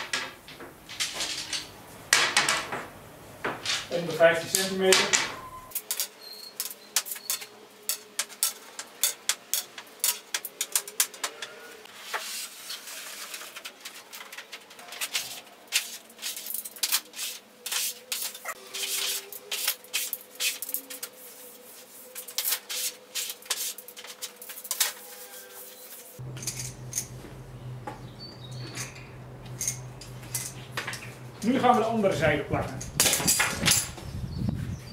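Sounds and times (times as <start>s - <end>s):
wooden slats clattering on table: 0.0s - 3.9s, 4.9s - 5.4s
laminate sheet sliding: 11.9s - 24.4s
low hum: 26.2s - 32.0s.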